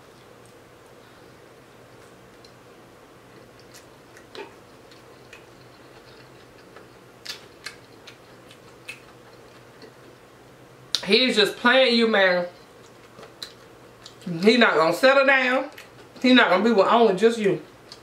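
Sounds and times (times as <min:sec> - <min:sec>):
low steady hum: 0:00.0 - 0:18.0
person chewing crispy fish: 0:03.3 - 0:10.3.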